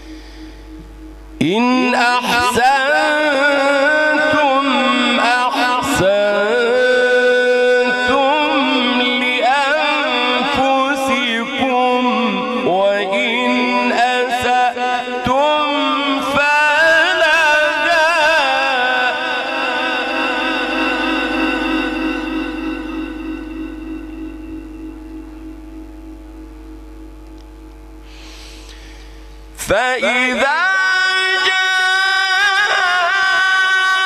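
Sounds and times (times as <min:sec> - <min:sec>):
man reciting melodically: 0:01.4 - 0:23.5, 0:29.6 - 0:34.0.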